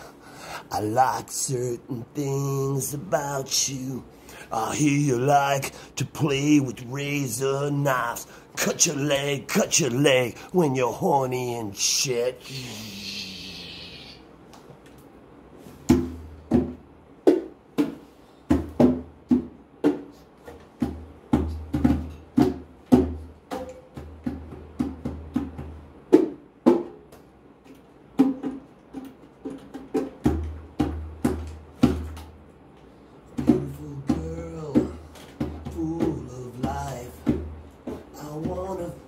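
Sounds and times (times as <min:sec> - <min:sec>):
congas played by hand: 0:15.8 - 0:39.0.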